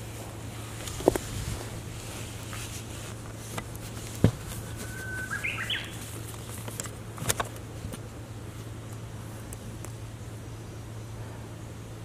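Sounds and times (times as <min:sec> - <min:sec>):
bird singing: 0:04.5 - 0:06.2.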